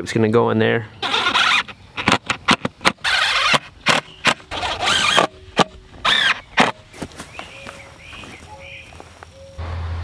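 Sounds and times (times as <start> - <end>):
cordless drill motor whir: 1.0 - 6.7.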